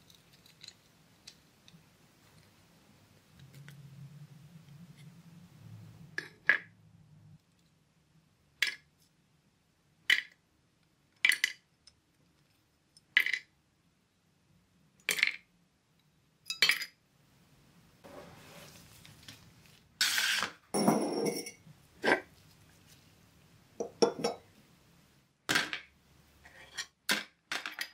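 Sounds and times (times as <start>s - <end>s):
toy parts clicking and clinking: 0.0s - 1.8s
glass jar set down on wood: 23.8s - 24.4s.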